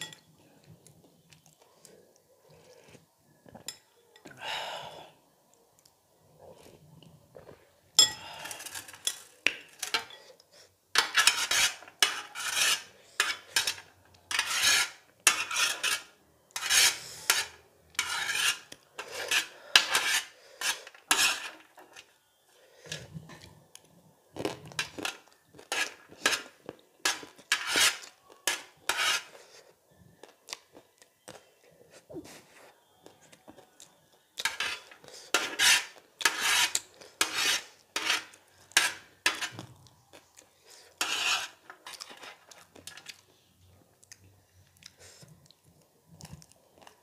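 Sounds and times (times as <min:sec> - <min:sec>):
metal spoon scraping glass bowl: 0:11.0 - 0:22.1, 0:25.0 - 0:29.4, 0:34.4 - 0:39.6, 0:41.0 - 0:42.6.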